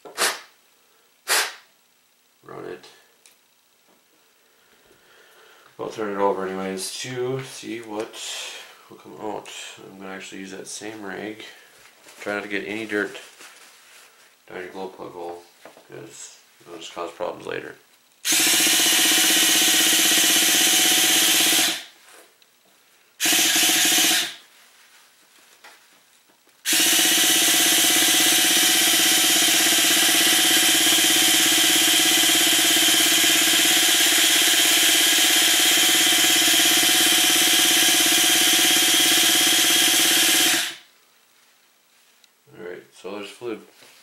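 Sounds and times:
electric starter whirring: 18.2s - 22.0s, 23.2s - 24.4s, 26.6s - 40.9s.

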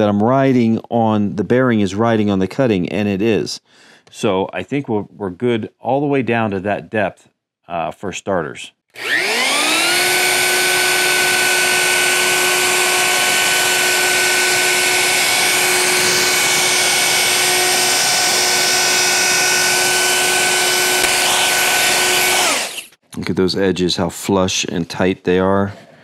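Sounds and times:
router high whine: 9.0s - 23.0s.

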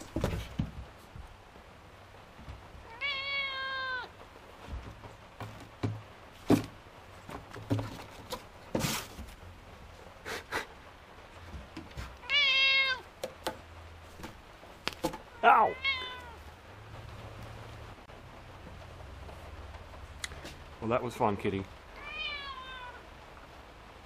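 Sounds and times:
knocks and scrapes: 0.0s - 1.3s, 4.6s - 9.5s, 11.4s - 12.2s, 13.2s - 15.3s
cat meowing: 2.8s - 4.2s, 12.2s - 13.1s, 15.3s - 16.5s, 21.9s - 23.1s.

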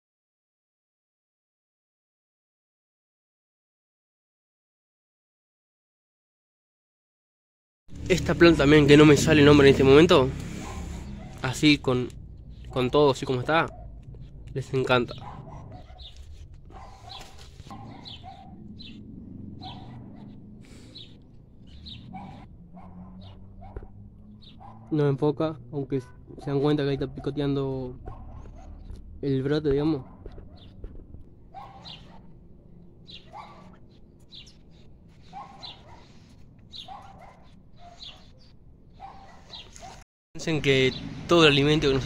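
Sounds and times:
small birds chirping: 8.0s - 25.1s, 26.0s - 40.0s, 40.6s - 42.0s.

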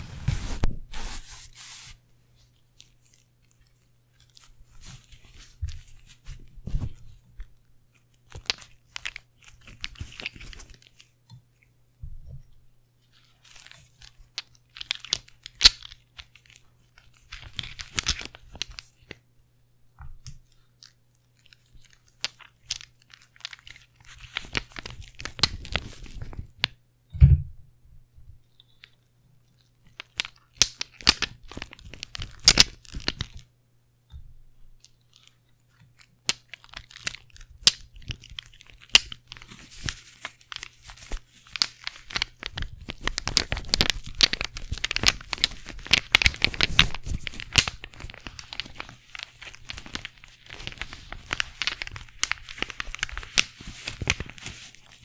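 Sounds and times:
loud thump: 27.1s - 27.6s.

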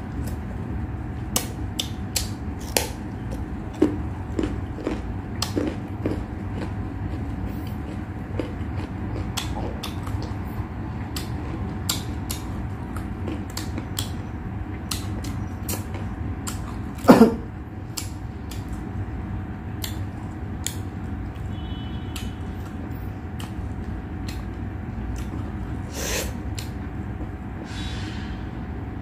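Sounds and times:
steady low hum: 0.0s - 29.0s
person chewing: 1.2s - 19.0s, 19.8s - 27.4s
mouth clicks and smacks: 1.3s - 3.0s, 11.1s - 14.2s, 14.8s - 16.8s, 17.9s - 18.8s, 19.8s - 20.9s, 23.4s - 23.6s.

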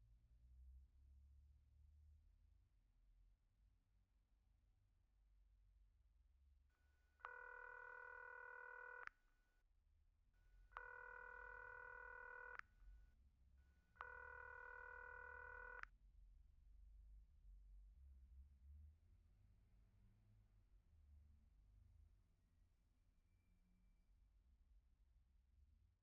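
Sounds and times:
phone ringing tone: 7.2s - 9.1s, 10.8s - 12.6s, 14.0s - 15.8s.

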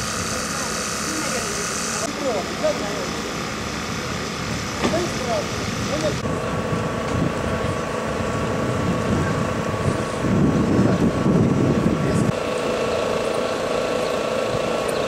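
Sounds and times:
vehicle engine idling: 0.0s - 15.0s
wind rumble on microphone: 5.6s - 12.4s.

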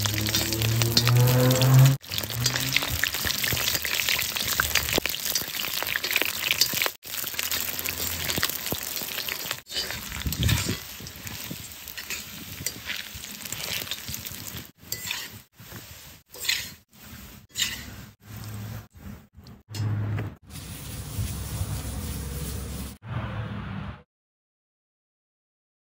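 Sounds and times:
metal skimmer scraping iron pot: 0.0s - 15.4s, 16.3s - 16.8s, 17.5s - 18.8s
hot oil sizzling: 0.0s - 18.9s, 20.4s - 23.0s.

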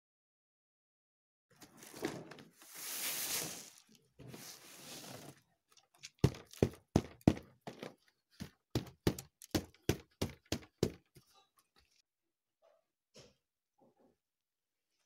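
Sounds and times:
grain pouring onto a mat: 2.6s - 5.3s.

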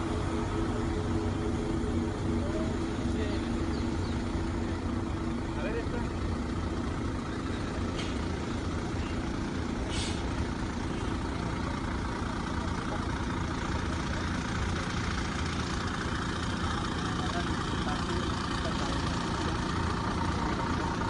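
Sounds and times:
large engine idling: 0.0s - 21.0s
short air hisses: 9.8s - 10.4s.

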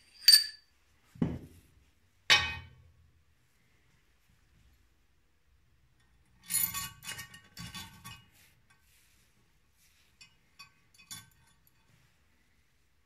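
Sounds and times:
small metal parts clinking: 0.0s - 0.6s.

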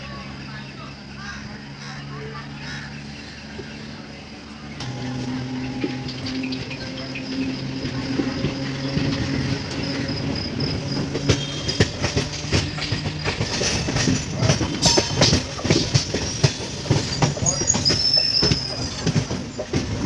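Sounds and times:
train wheels clattering over rails: 4.7s - 20.0s.

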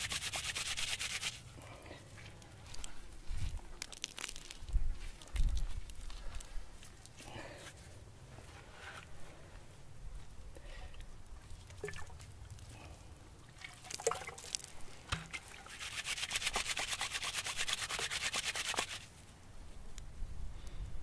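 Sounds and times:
scratchy rubbing of fibre: 0.0s - 1.4s, 15.7s - 19.1s
fibre crackling and rustling: 2.2s - 7.2s.

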